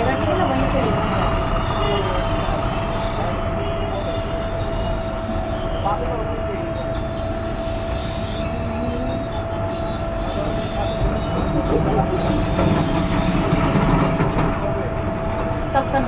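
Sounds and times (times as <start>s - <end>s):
constant hum: 0.0s - 16.0s
steady rumbling: 0.0s - 16.0s.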